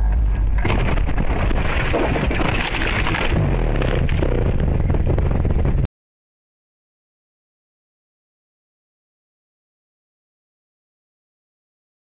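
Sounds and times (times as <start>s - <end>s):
car crashing through bushes: 0.6s - 4.6s.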